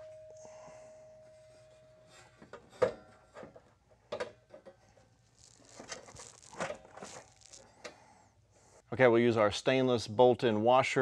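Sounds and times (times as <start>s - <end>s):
rustling scrape: 5.2s - 7.7s.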